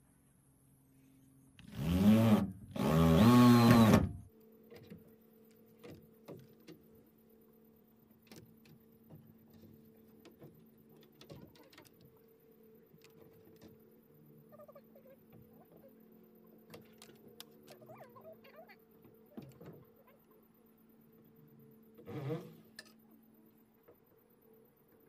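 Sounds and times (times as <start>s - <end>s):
power tool motor whine: 1.6s - 4.3s, 22.0s - 22.7s.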